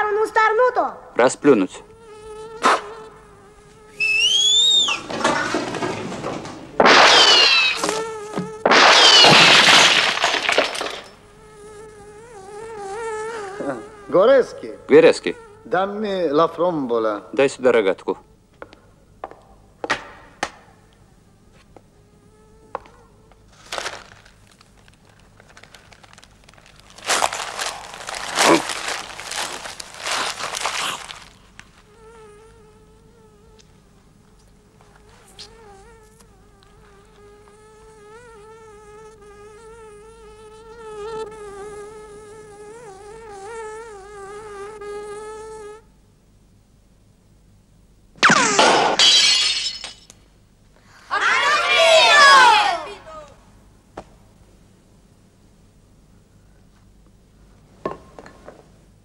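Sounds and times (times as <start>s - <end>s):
insect buzzing: 1.4s - 16.2s, 20.7s - 46.0s.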